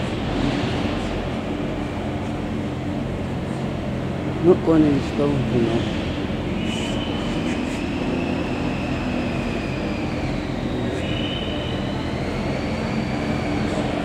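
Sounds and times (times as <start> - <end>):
low rumble of indoor hall: 0.0 - 14.0
faint high whine: 4.2 - 14.0.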